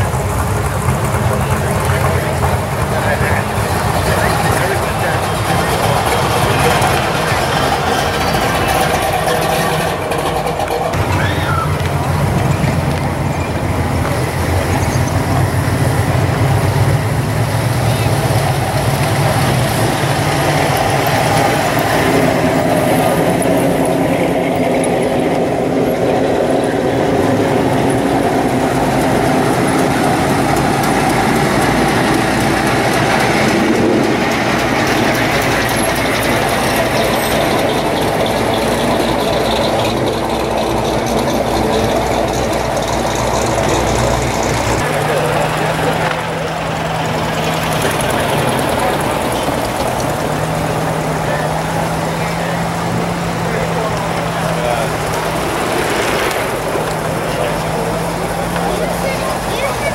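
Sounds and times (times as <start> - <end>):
car engines running low: 0.0 - 59.9.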